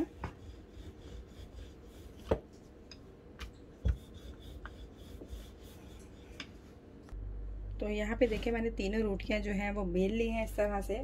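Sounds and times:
rolling pin rolling dough: 0.0 - 2.8, 3.4 - 6.7.

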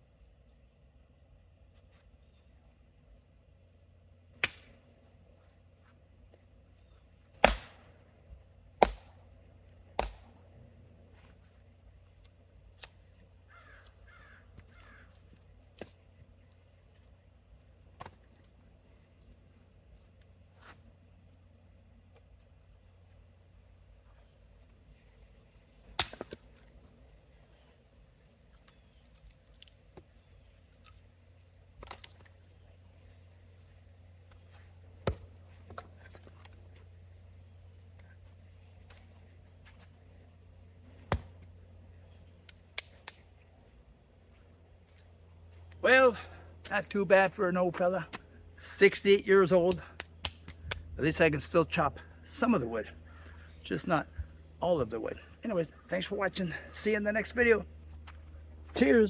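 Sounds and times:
axe chopping firewood: 4.4 - 4.7, 7.3 - 7.9, 8.8 - 9.2, 9.9 - 10.4, 26.0 - 26.6, 31.8 - 32.3, 35.0 - 36.6, 41.0 - 41.5
bird calling: 13.1 - 15.5.

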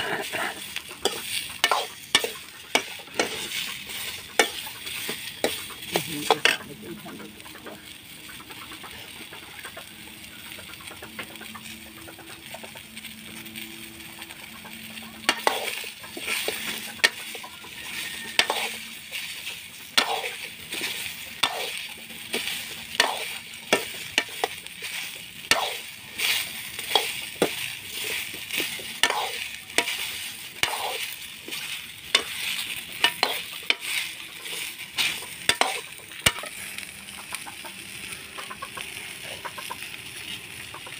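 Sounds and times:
metal ladle scraping wok: 0.0 - 6.7, 14.5 - 36.9
food sizzling in oil: 0.0 - 40.9.

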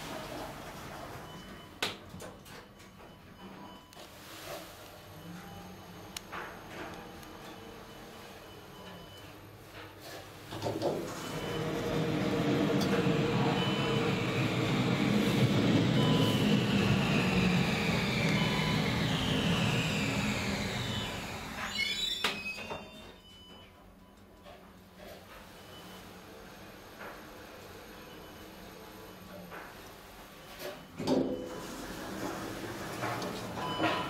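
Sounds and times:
lift high whine: 11.1 - 22.7
lift rumble and rush: 11.2 - 21.6.

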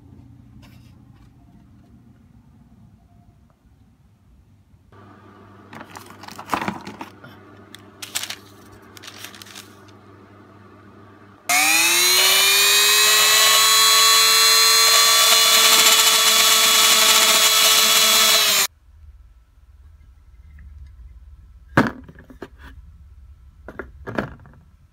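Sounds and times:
rotary tool grinding wood: 11.5 - 18.7.

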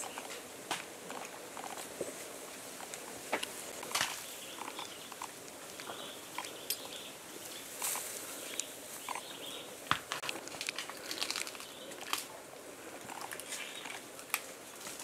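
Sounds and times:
steady hiss: 0.0 - 15.0
sharp clicks and crackles: 9.9 - 12.3.

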